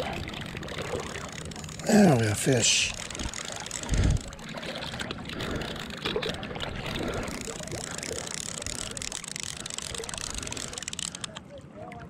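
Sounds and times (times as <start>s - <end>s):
small water splashes: 0.0s - 12.0s.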